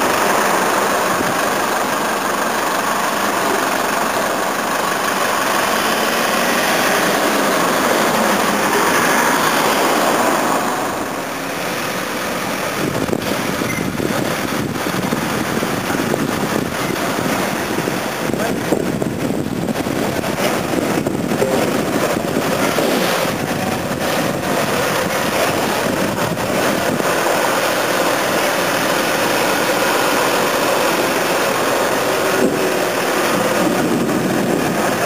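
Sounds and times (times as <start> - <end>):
armoured vehicle engine passing: 0.0 - 13.6.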